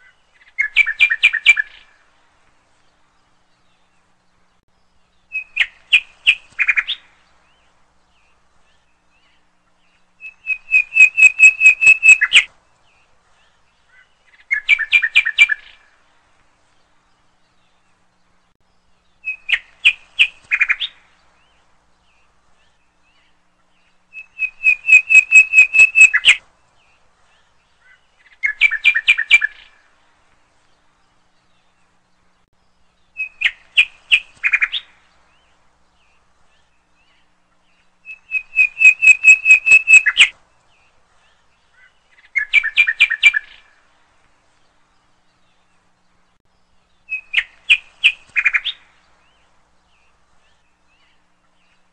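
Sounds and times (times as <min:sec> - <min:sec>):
bird chirping rapidly: 0:10.2 - 0:12.5, 0:24.1 - 0:26.4, 0:38.0 - 0:40.3.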